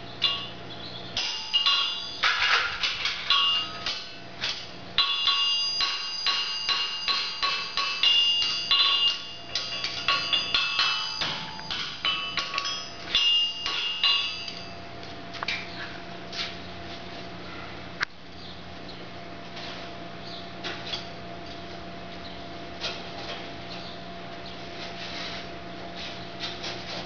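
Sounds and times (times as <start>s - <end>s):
hammer ringing on anvil: 0.2s - 0.6s, 1.2s - 4.3s, 5.0s - 14.9s.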